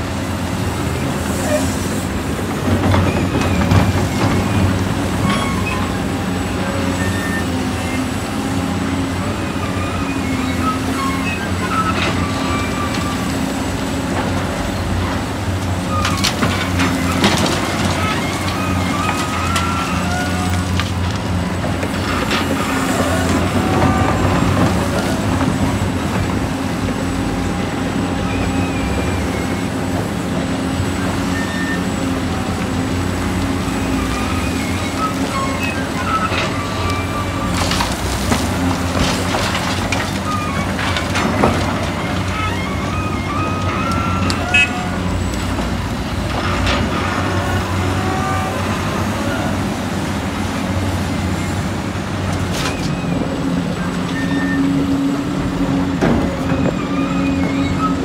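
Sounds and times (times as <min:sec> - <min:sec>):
heavy diesel machinery running: 0:00.0 - 0:58.0
short high squeaks: 0:05.2 - 0:06.0, 0:56.7 - 0:58.0.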